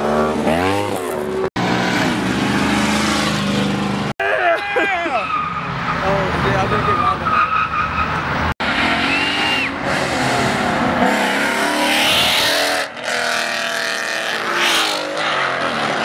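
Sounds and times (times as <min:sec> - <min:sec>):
cars accelerating hard: 0:08.0 - 0:16.0.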